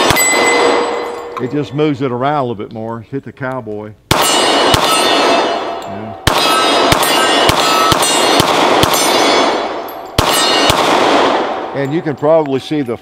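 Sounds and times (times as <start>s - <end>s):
pistol shots: 0.0s - 1.5s, 4.1s - 11.9s
steel target ringing: 0.0s - 1.8s, 4.2s - 12.2s.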